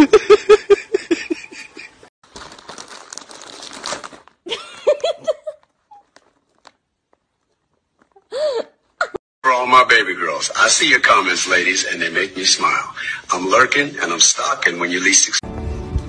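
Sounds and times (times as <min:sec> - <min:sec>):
rapid laughter: 0:00.0 - 0:02.1
crinkling rustle: 0:02.2 - 0:08.3.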